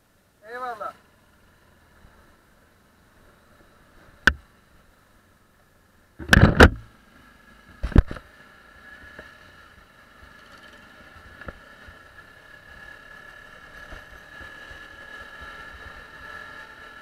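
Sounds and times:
motorcycle engine running: 1.0 - 17.0.

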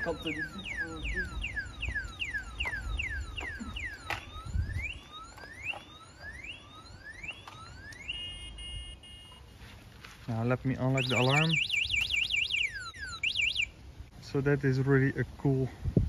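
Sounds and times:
e-bike alarm chirps and whoops: 0.0 - 9.4, 10.9 - 13.8.

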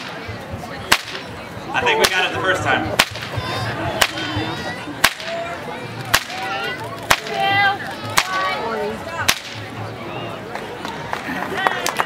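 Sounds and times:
crowd voices: 0.0 - 12.0
whip cracking: 0.9 - 1.2, 3.0 - 3.4, 4.0 - 4.3, 5.0 - 5.4, 6.1 - 7.4, 8.2 - 8.4, 9.3 - 9.7.

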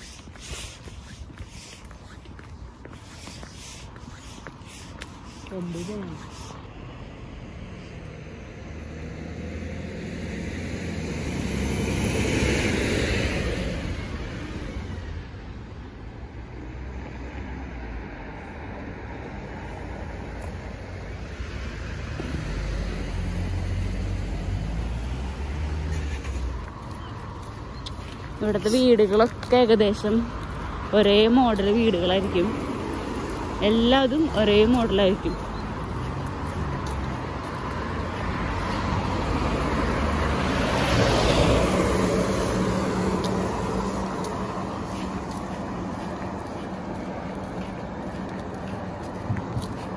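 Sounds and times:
car passing: 0.0 - 49.9
road traffic rumble: 0.0 - 49.9
vehicle driving past: 6.4 - 15.4, 21.7 - 28.1, 32.2 - 49.9.

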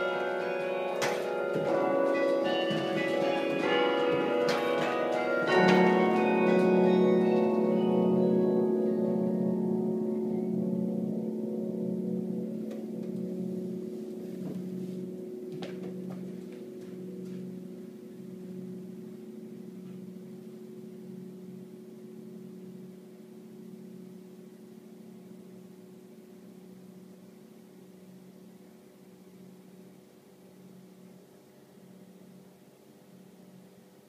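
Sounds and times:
carillon bells ringing: 0.0 - 21.9.

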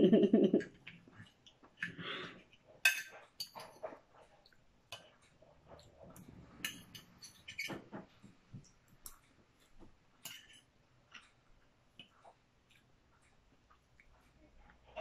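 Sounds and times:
fork clinking and scraping on plate: 2.8 - 4.1, 5.0 - 8.0, 10.2 - 10.7.

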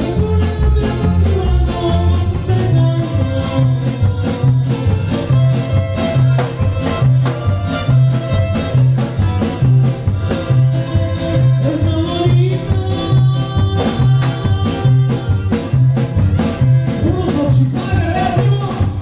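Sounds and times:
bass line: 0.0 - 19.0
drum hits: 0.0 - 19.0.

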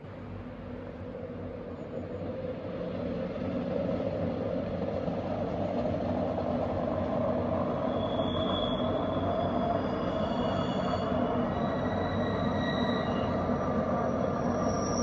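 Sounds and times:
train rumbling on viaduct: 0.0 - 15.0
high wheel squeal: 7.7 - 15.0.

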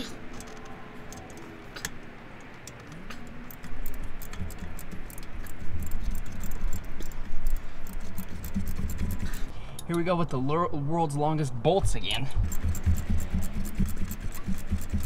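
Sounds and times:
socket ratchet clicking: 0.4 - 9.9, 12.4 - 15.0.

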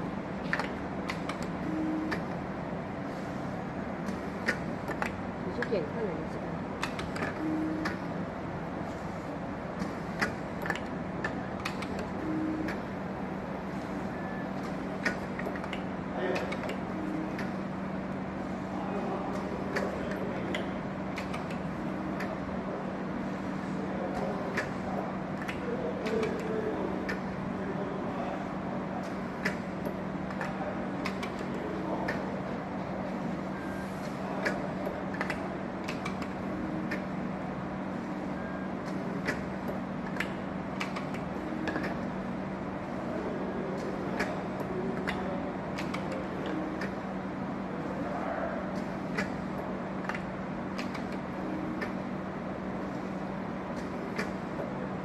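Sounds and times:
machine motor hum: 0.0 - 55.0
mechanism clicks and clacks: 0.4 - 2.4, 4.0 - 6.1, 6.8 - 8.2, 9.8 - 13.0, 13.6 - 18.1, 19.3 - 22.6, 24.1 - 27.5, 29.0 - 32.4, 33.1 - 37.2, 38.1 - 42.9, 43.8 - 47.2, 48.7 - 55.0.

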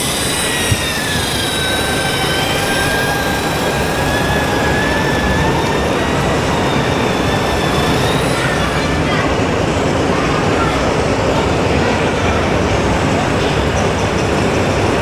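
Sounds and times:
model truck electric motor whine: 0.0 - 6.1
crowded hall din: 0.0 - 15.0.

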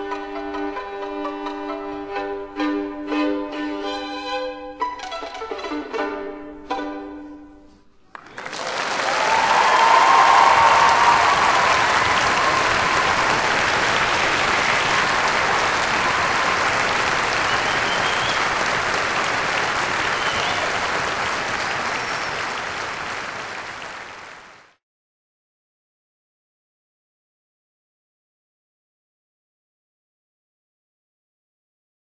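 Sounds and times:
audience applauding: 8.1 - 24.8.

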